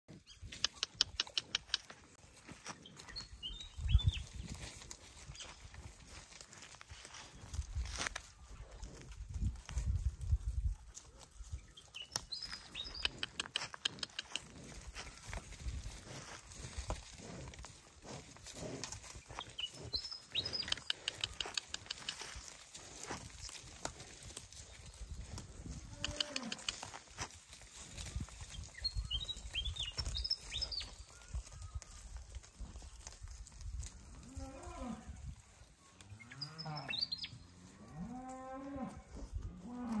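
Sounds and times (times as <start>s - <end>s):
cow hooves on dry grass: 0.1s - 40.0s
cows mooing: 25.9s - 26.7s.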